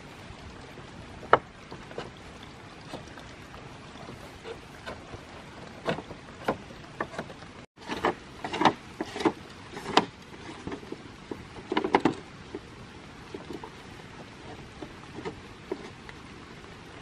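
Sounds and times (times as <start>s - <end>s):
running water: 0.0s - 17.0s
bamboo poles knocking together: 1.2s - 2.2s.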